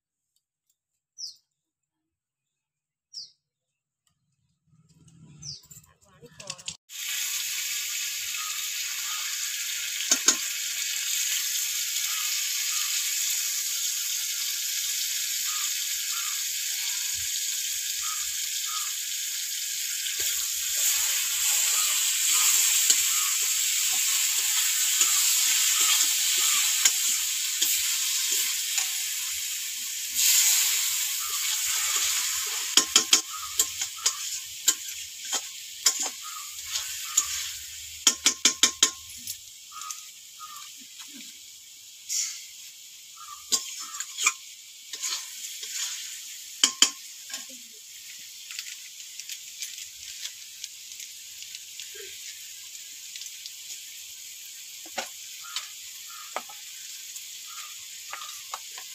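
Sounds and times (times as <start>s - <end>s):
food sizzling in hot oil: 6.3s - 58.9s
spoon scraping a wok: 20.1s - 29.5s, 30.1s - 39.2s, 43.4s - 47.5s.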